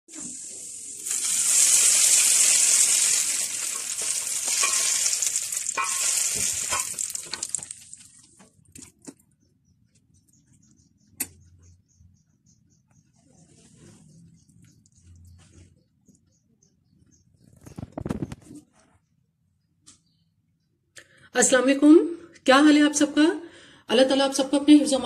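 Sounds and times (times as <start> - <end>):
hot oil sizzling: 0.1 - 8.1.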